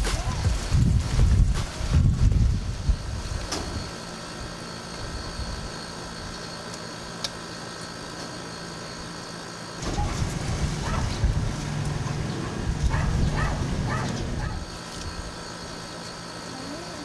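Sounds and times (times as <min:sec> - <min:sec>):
wind rumble on microphone: 0:00.0 - 0:03.9, 0:09.8 - 0:15.3
steady mechanical hum: 0:00.0 - 0:17.0.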